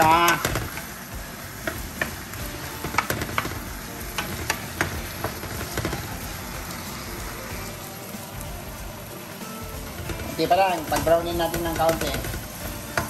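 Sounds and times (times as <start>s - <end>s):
meat sizzling in a skillet: 0.0s - 13.0s.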